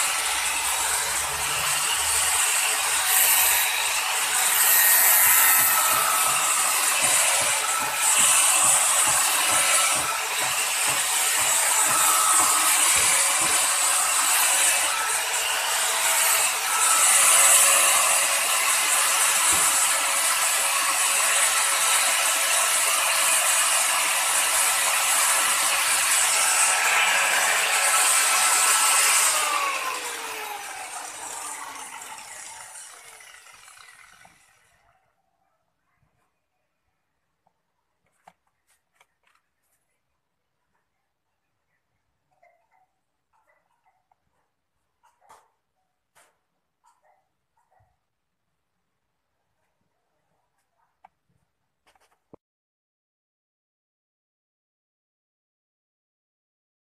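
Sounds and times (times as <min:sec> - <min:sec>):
angle grinder grinding blade: 0:00.0 - 0:34.8
grinder spinning down: 0:00.0 - 0:34.8.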